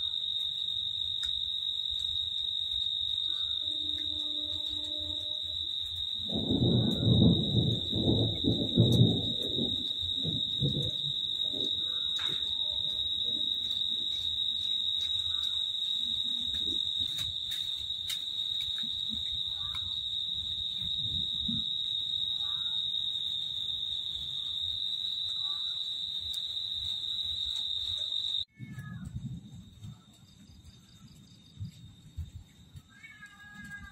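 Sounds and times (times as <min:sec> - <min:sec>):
insect trilling: 0:00.0 - 0:29.0
low thunder rumble: 0:03.7 - 0:14.7, 0:18.7 - 0:22.8, 0:28.4 - 0:33.9.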